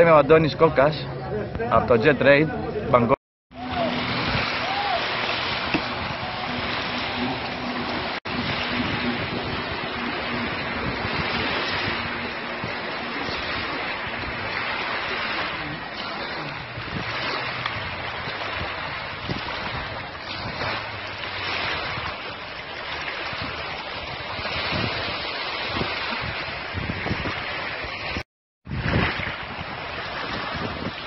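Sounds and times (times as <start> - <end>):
small waves lapping: 3.5 - 31.0
wind buffeting microphone: 3.6 - 31.0.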